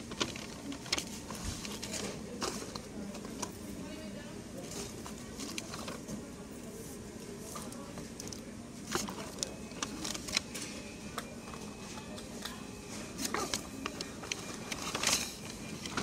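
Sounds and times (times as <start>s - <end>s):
paper rustling: 0.0s - 3.5s, 4.6s - 6.2s, 7.5s - 10.8s, 13.0s - 16.0s.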